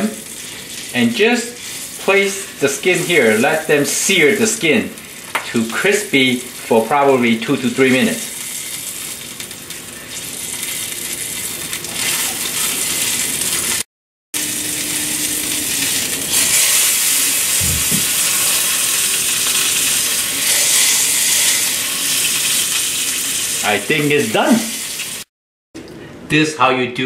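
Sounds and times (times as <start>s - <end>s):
fish skin sizzling in oil: 0.0s - 13.8s, 14.4s - 25.3s
brief low thump: 17.6s - 18.1s.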